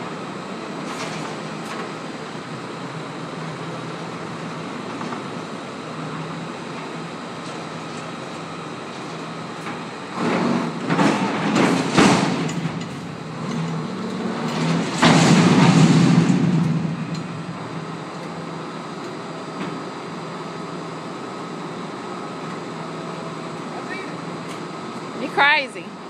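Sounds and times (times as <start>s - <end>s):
loud metal scraping and clanking: 10.1s - 17.3s.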